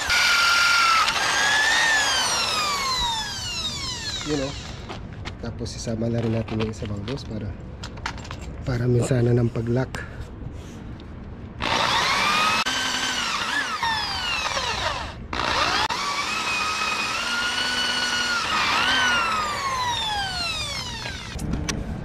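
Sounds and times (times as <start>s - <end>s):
electric drill boring through steel: 0.0s - 5.0s, 11.6s - 21.4s.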